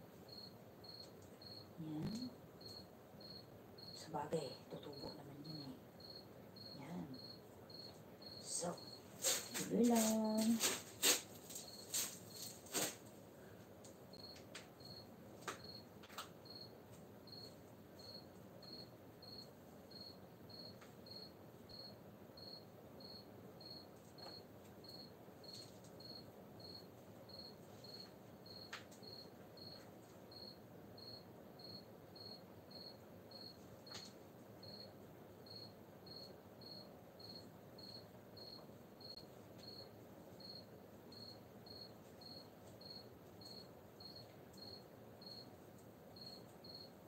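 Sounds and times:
cricket chirping: 0:00.0 - 0:13.0, 0:14.1 - 0:47.0
hands in soil and plastic pots: 0:08.6 - 0:14.7.

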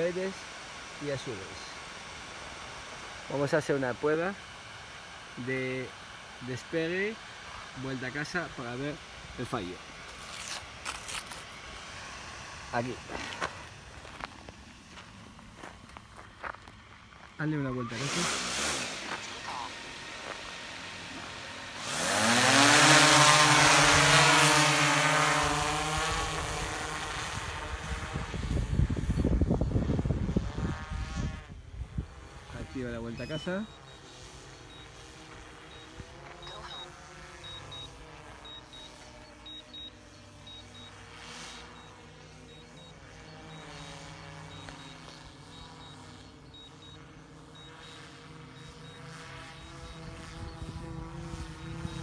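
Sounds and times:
drone propellers whining and humming: 0:00.0 - 0:52.0
high electronic double beep: 0:33.1 - 0:35.1, 0:35.7 - 0:52.0.

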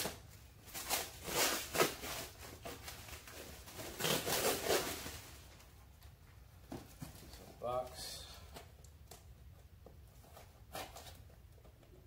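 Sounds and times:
cardboard and plastic rustling: 0:00.0 - 0:07.7.

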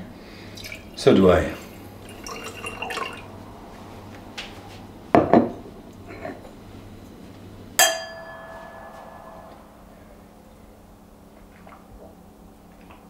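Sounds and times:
wine glasses clinking: 0:02.1 - 0:03.2, 0:07.8 - 0:09.9.

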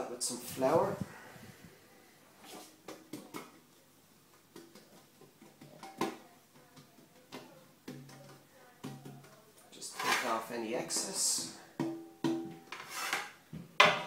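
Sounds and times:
baking tray knocking and tapping: 0:13.6 - 0:14.0.

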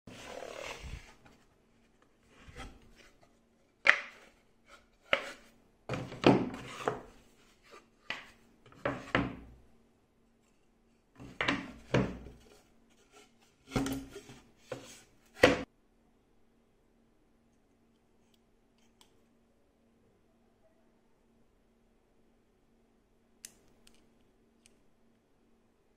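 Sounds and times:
boards scraping: 0:00.1 - 0:01.5, 0:02.2 - 0:09.5, 0:11.2 - 0:15.7
wooden boards knocking: 0:11.2 - 0:12.4.

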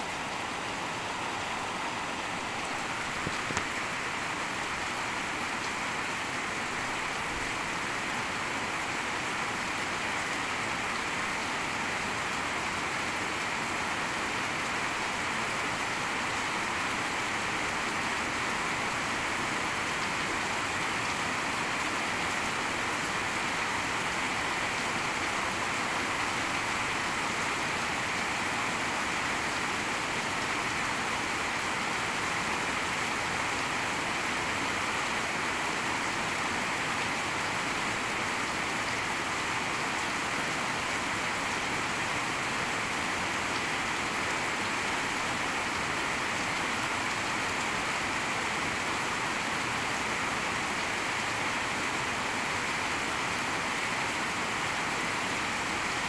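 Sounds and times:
heavy rain falling: 0:00.0 - 0:56.0.

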